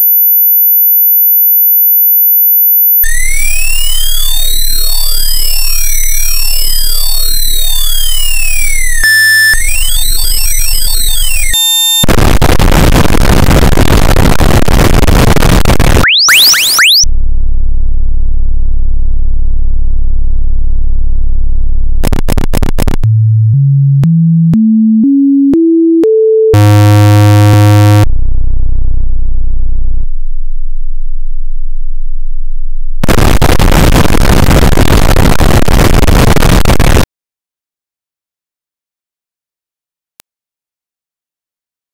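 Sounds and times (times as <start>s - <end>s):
low electronic buzz: 3.0s - 25.8s, 26.5s - 37.0s
sweeping sine tones: 3.1s - 11.9s.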